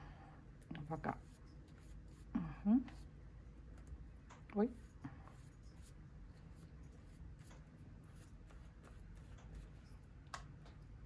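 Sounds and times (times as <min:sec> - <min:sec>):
scratching and rustling on paper: 0:01.0 - 0:02.3, 0:04.7 - 0:10.1.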